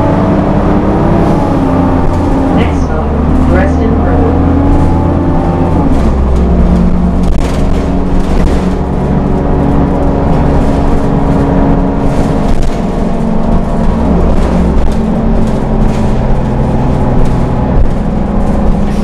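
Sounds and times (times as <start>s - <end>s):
bus engine idling: 0.0s - 19.0s.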